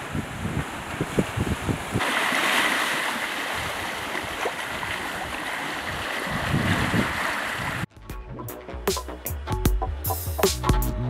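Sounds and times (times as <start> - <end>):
water rushing past hulls: 0.0 - 7.9.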